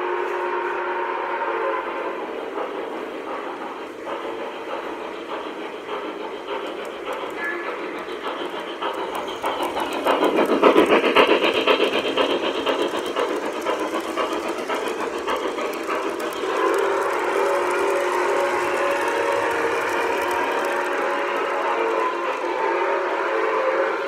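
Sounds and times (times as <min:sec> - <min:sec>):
electronic train whistle: 0:00.0 - 0:02.1, 0:16.6 - 0:24.0
model train wheels clicking: 0:00.6 - 0:24.0.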